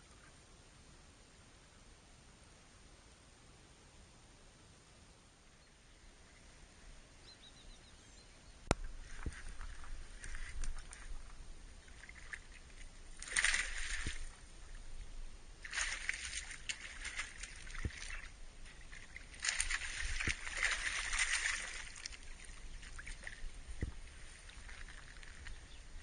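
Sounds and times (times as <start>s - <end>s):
steady low rumble: 8.6s - 26.0s
water sloshing: 8.7s - 26.0s.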